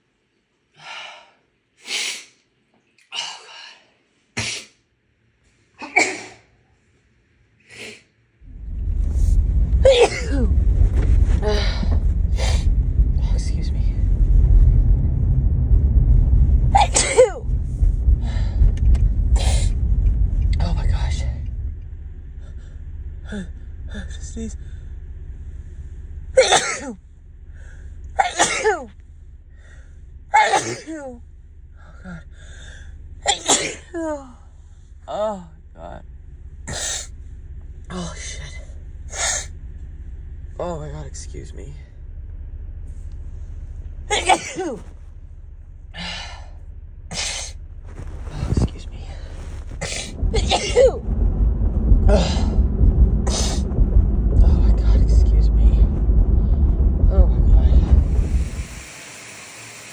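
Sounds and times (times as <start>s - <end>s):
woman sneezing: 5.8s - 6.5s, 30.4s - 31.1s, 33.3s - 34.0s, 44.1s - 44.9s
low rumble: 8.3s - 59.9s.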